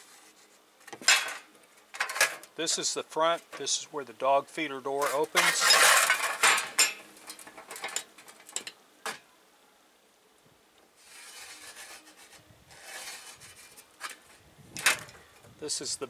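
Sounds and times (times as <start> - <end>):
marker scratching on metal: 11.0 - 14.2.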